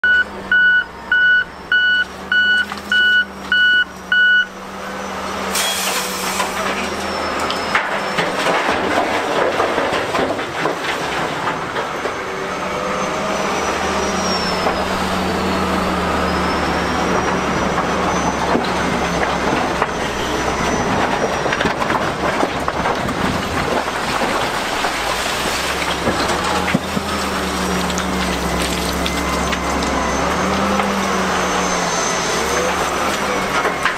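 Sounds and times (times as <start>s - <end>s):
reversing alarm beeping: 0.0s - 4.6s
diesel engine under load: 0.0s - 33.9s
rock scraping and clattering: 5.5s - 12.2s, 17.2s - 30.0s.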